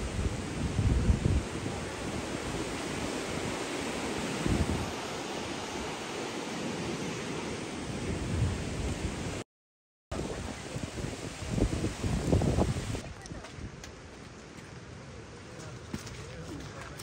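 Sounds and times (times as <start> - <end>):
wind buffeting microphone: 0.0 - 6.0, 10.1 - 14.4
hiss of outdoor wind: 0.0 - 9.4, 10.2 - 15.6
low rumbling wind gusts: 0.0 - 9.4, 10.1 - 14.1.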